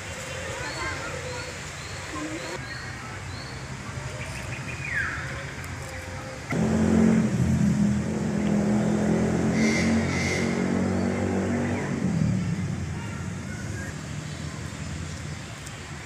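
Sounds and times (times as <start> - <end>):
motor engine running: 6.5 - 13.1.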